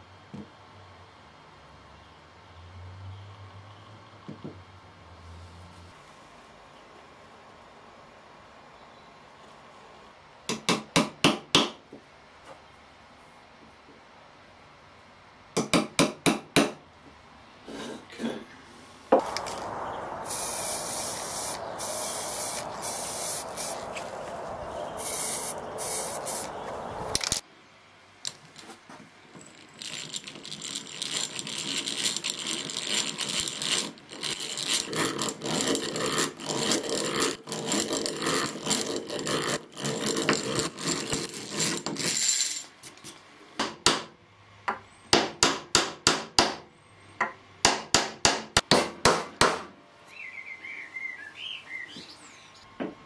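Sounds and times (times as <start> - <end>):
hammer tapping nails: 10.5 - 11.8, 15.6 - 16.8, 44.7 - 46.6, 47.2 - 49.7
spray can hissing: 20.2 - 24.0, 25.0 - 26.6
drill grinding into wood: 29.8 - 42.6.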